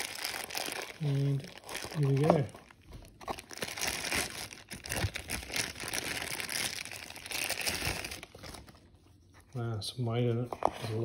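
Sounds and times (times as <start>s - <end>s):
plastic bag crinkling: 0.0s - 8.7s.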